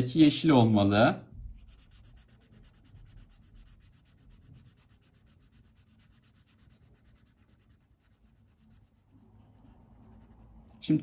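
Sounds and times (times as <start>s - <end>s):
marker scratching on paper: 1.5s - 11.0s.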